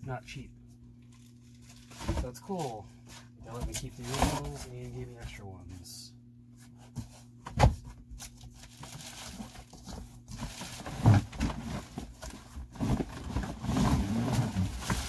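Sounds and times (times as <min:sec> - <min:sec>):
cardboard box rustling and bumping: 0:08.8 - 0:15.0.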